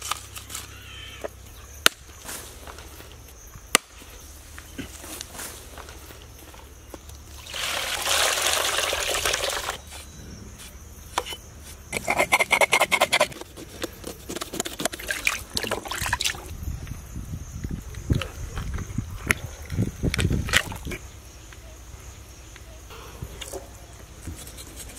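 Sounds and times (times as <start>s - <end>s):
water pouring into plastic tub: 7.4s - 9.8s
splashing and rubbing in water: 12.0s - 16.5s.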